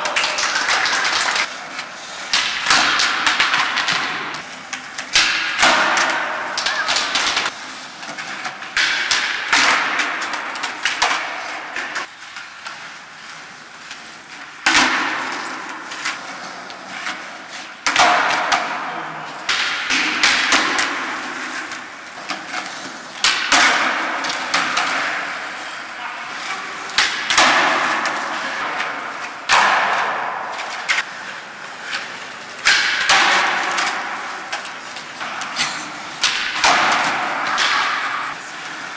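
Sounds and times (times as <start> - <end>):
skateboard clacks: 0.0 - 12.9, 14.0 - 38.9
skateboards rolling on concrete: 0.0 - 38.9.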